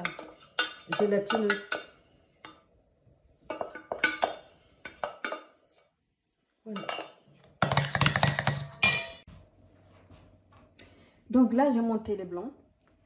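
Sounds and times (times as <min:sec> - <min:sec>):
stirring and scraping in bowl: 0:00.0 - 0:02.8, 0:03.4 - 0:06.0.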